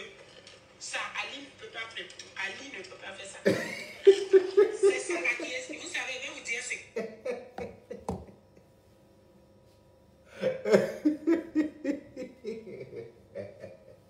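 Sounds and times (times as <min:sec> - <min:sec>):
man laughing: 0:03.5 - 0:05.4, 0:07.0 - 0:08.4, 0:10.4 - 0:14.0.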